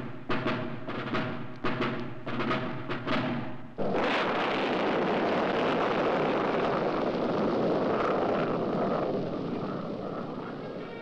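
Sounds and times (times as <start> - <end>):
rocket motor rushing noise: 3.8 - 11.0.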